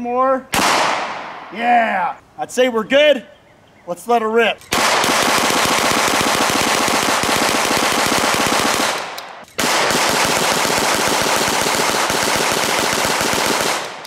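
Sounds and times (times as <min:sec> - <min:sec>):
gatling gun firing rapidly: 0:04.7 - 0:14.0.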